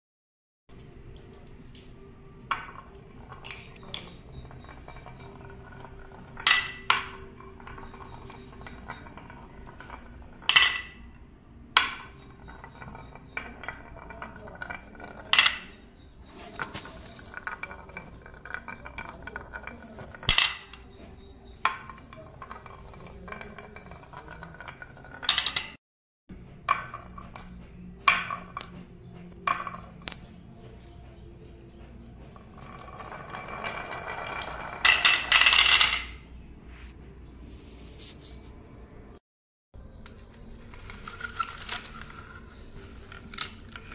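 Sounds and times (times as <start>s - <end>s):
marbles clacking: 0.7s - 25.8s, 26.6s - 30.3s, 32.2s - 36.3s, 40.1s - 43.9s
glass marbles rolling on wood: 1.1s - 25.8s, 26.6s - 30.2s, 32.0s - 36.4s, 40.1s - 43.9s.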